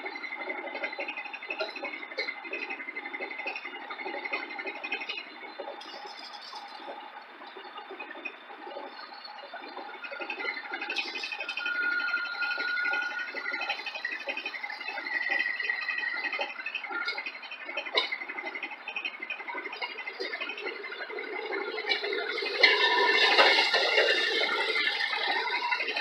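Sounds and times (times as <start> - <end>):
rattling engine and wheels: 0.0 - 26.0
thin high whine: 20.1 - 26.0.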